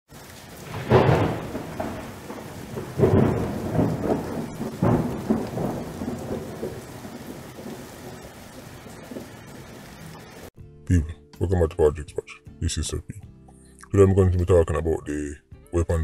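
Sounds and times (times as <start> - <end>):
rain-like hiss: 0.1 - 10.5.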